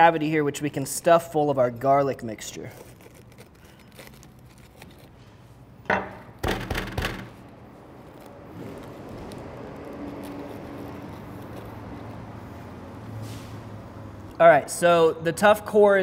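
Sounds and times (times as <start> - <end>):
handling cabbage leaves: 2.3 - 5.7, 7.6 - 12.8
cabbage core crunching: 2.6 - 5.3, 7.9 - 12.3.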